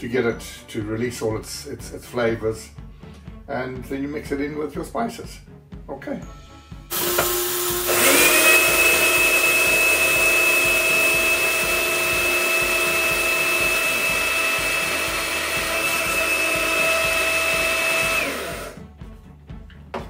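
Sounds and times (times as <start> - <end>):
coffee grinder motor whine: 6.9 - 18.8
grinder spinning up: 6.9 - 18.8.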